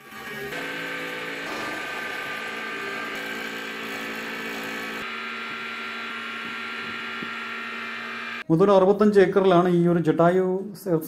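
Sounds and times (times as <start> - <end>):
cable car whirring and humming: 0.3 - 8.4.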